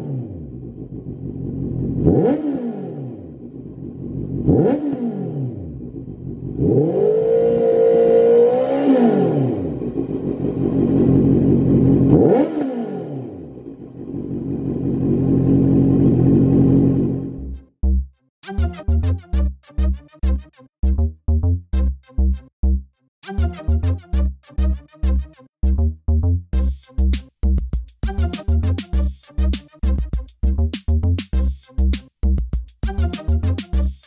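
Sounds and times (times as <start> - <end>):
motorcycle engine revving: 0.0 - 17.5.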